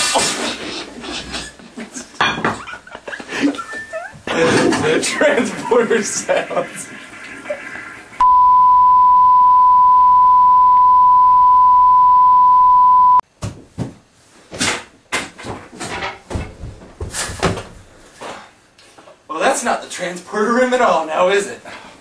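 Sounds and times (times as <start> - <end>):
steady test tone: 8.2 - 13.2
knocks and thumps: 13.4 - 17.9.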